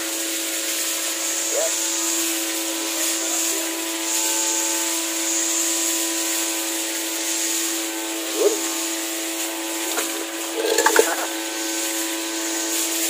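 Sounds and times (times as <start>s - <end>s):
steady mechanical hum: 0.0s - 13.0s
tap water running and splashing: 0.0s - 13.0s
hands rubbing and rinsing: 9.8s - 11.2s.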